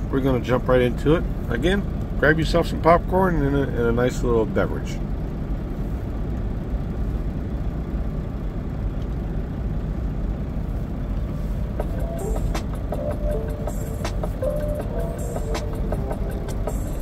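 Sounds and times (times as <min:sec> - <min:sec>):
low rumbling noise: 0:05.0 - 0:17.0.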